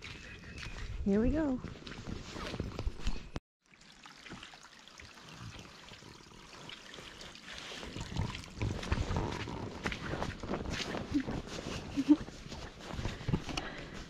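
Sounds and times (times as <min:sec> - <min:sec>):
footsteps on a trail: 0:00.0 - 0:03.4, 0:07.5 - 0:14.0
flowing river water: 0:03.6 - 0:10.0.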